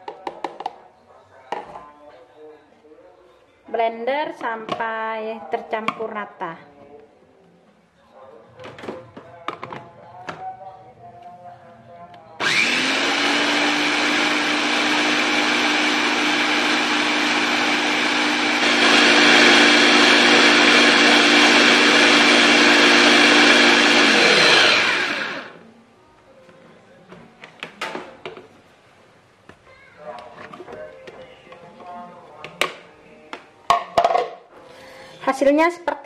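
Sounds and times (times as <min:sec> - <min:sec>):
food chopper motor whining: 0:12.4 - 0:25.6.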